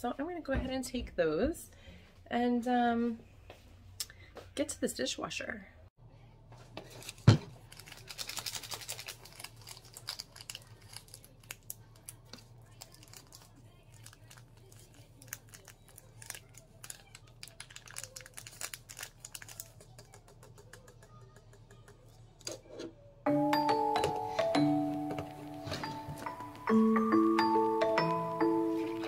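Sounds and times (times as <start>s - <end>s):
crinkling rustles: 6.6s - 20.0s
clicks and taps on counter: 19.9s - 22.0s.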